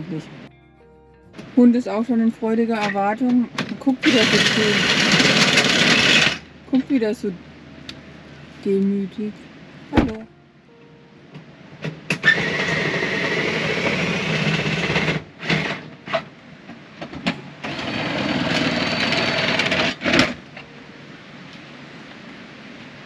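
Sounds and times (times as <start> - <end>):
small electric motor whirring: 4.0 - 6.4, 17.6 - 20.3.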